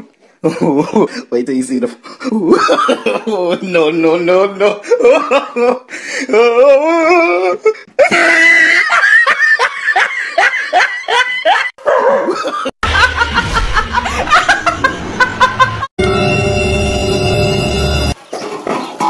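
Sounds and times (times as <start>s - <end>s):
woman laughing: 6.9s - 11.7s, 12.3s - 15.9s.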